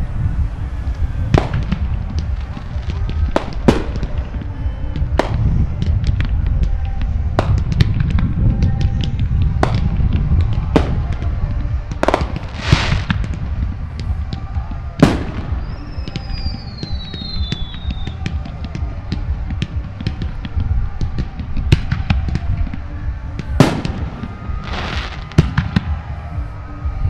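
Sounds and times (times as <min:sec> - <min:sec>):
fireworks crackling: 0:00.0 - 0:27.0
low rumble: 0:00.0 - 0:27.0
hissing firework burst: 0:12.0 - 0:13.8
falling firework whistle: 0:12.0 - 0:27.0.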